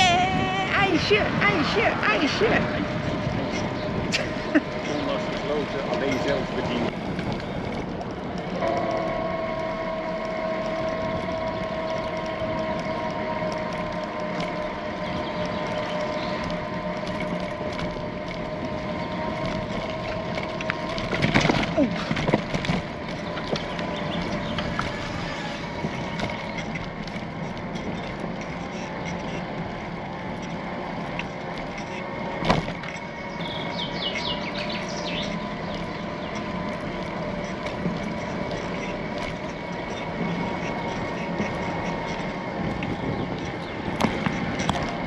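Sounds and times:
bicycle tyre and wind rumble: 0.0 - 45.0.

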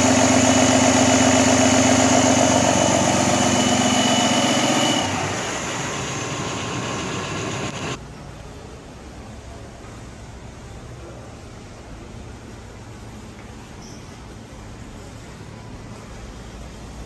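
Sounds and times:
diesel engine idling: 0.0 - 8.0.

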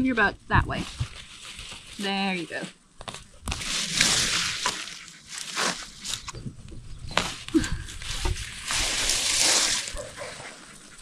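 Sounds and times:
vines rustling and snapping: 3.0 - 10.6.

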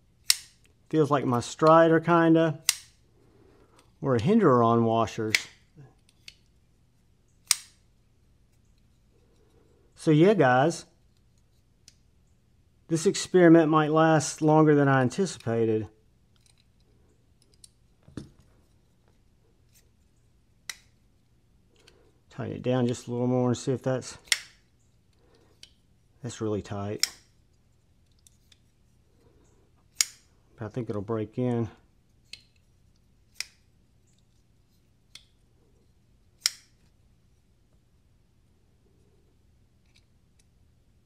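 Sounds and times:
folding knife clicks: 0.2 - 0.6, 2.6 - 2.9, 7.4 - 7.8, 27.0 - 27.3, 29.9 - 30.3, 36.4 - 36.8.

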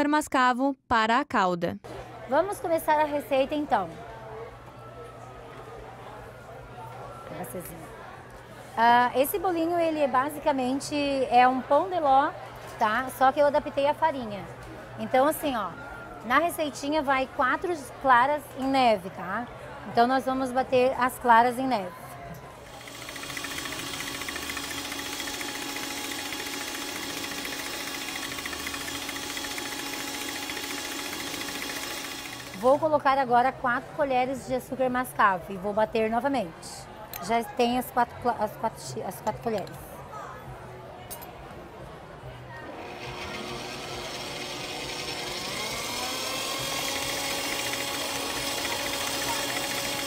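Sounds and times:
stand mixer motor running: 22.7 - 32.6, 42.7 - 50.0
whisk whipping egg whites: 22.7 - 32.6.

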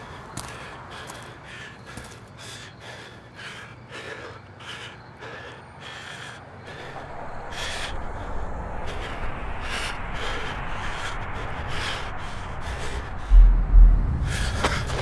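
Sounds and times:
man panting hard: 0.0 - 15.0
low rumble: 6.8 - 15.0.

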